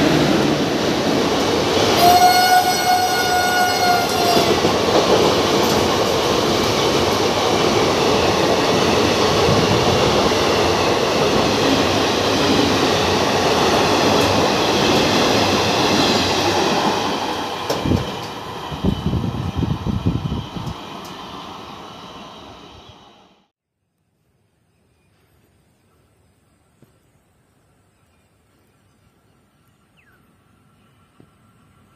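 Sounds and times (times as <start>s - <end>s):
train wheels clattering past: 0.0s - 19.0s.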